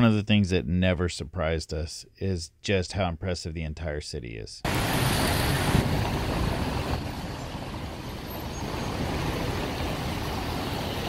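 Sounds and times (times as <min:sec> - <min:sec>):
city traffic rumble: 0:04.6 - 0:11.0.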